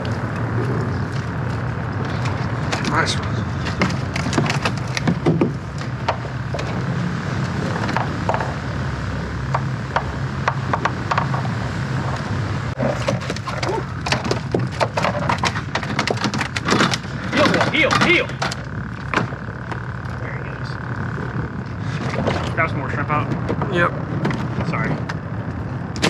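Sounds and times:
steady low hum: 0.0 - 26.0
knocks and rattles on boat deck: 3.8 - 6.8, 9.5 - 11.5, 12.8 - 19.8.

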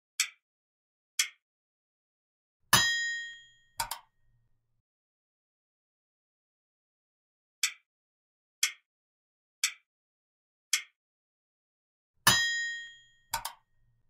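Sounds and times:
timer ticks: 0.2 - 0.4, 1.2 - 1.4, 7.6 - 7.9, 8.6 - 8.9, 9.6 - 9.9, 10.7 - 11.0
bell ding: 2.8 - 3.8, 12.3 - 13.3.

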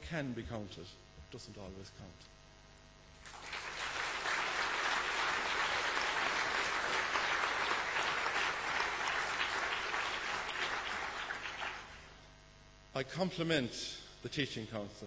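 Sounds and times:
crowd applauding: 3.2 - 12.1.

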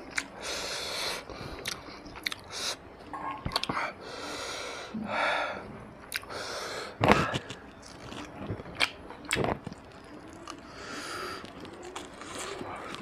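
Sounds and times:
wet chewing: 0.0 - 0.4, 1.3 - 2.5, 7.1 - 13.0.

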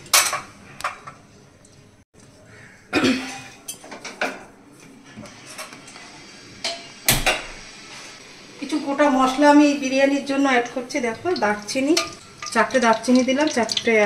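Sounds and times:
metal pots clattering: 11.1 - 13.9.

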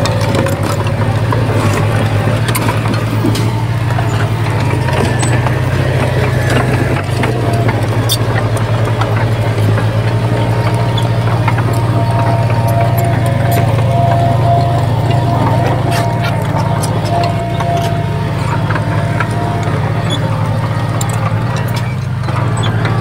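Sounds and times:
heavy diesel engine droning: 0.0 - 23.0
light clicks and clanks: 0.0 - 23.0.

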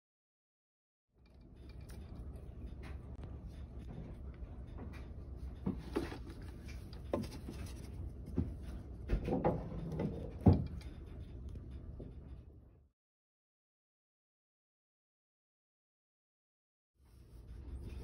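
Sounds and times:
low steady hum: 1.2 - 12.9, 17.0 - 18.0.

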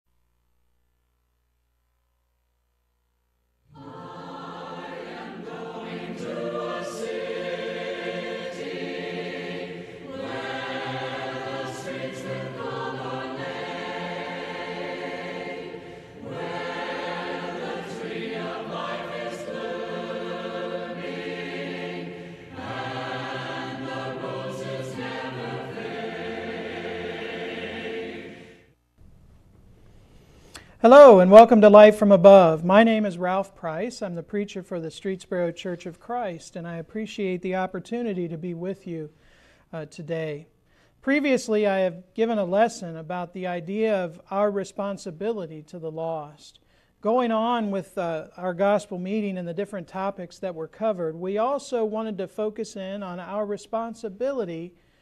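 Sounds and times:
choir singing: 3.7 - 28.7.

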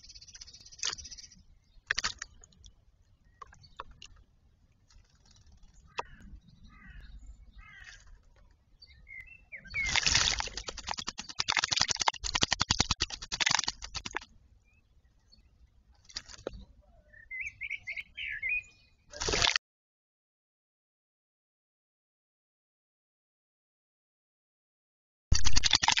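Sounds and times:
soft bird calls: 0.0 - 11.9, 14.6 - 19.4
bird splashing in water: 1.9 - 2.5, 9.7 - 14.3.

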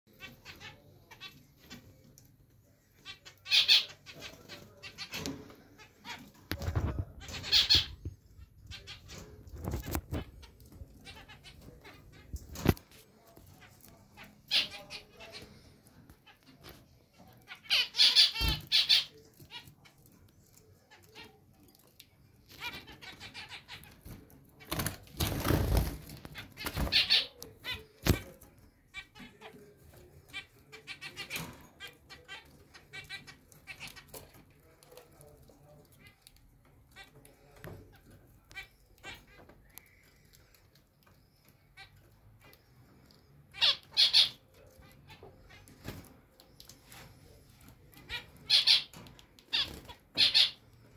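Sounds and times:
zebra finches calling: 3.0 - 12.7, 14.2 - 15.5, 16.2 - 19.8, 22.5 - 28.2, 43.4 - 47.1, 47.9 - 50.9
finches giving nasal calls: 43.5 - 44.4, 48.1 - 50.6.

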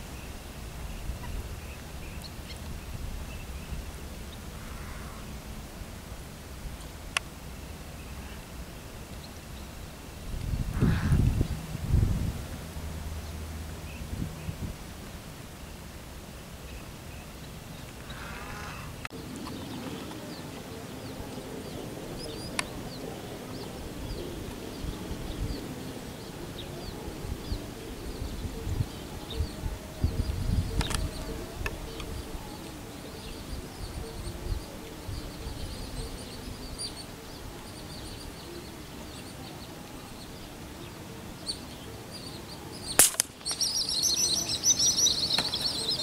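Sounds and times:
wind rumble on microphone: 0.0 - 40.6
faint bird chirps: 16.6 - 46.0
sharp click: 43.0 - 43.7.

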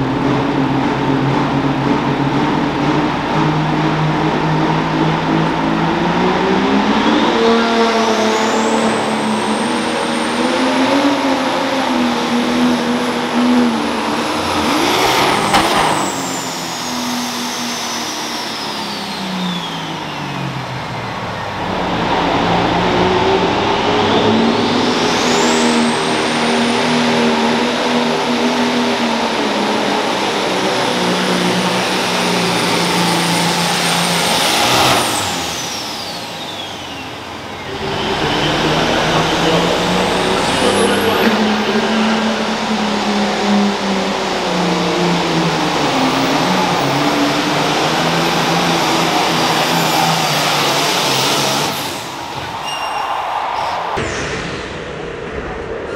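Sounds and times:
tractor engine whining under load: 0.0 - 52.3.

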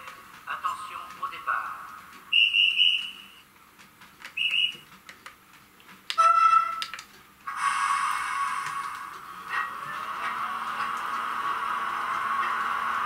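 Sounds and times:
locomotive horn blast: 6.2 - 6.8.

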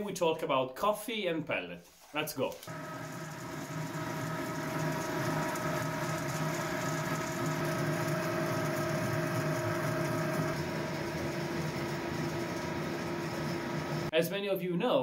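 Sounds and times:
machinery humming: 2.7 - 14.1
steady whining tones: 2.7 - 14.1.

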